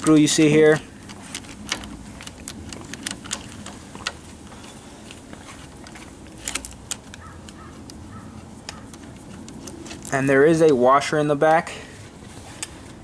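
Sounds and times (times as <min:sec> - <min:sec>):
small metal clicks: 0:00.0 - 0:05.2, 0:05.8 - 0:08.0.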